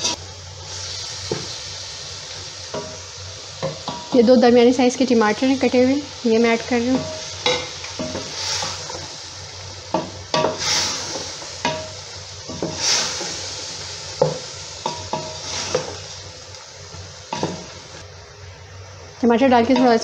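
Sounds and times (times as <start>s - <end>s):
food sizzling in a metal pot: 0.0s - 20.0s
spatula scraping a pot: 9.9s - 13.6s, 14.2s - 16.2s.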